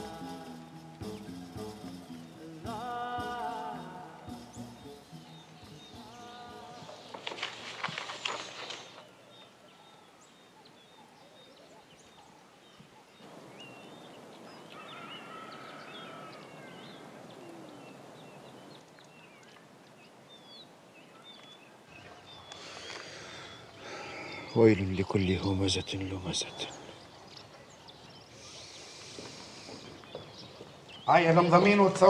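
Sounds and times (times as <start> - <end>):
music: 0.0 - 7.4
wavering bird call: 0.0 - 7.7
small birds chirping: 0.8 - 32.0.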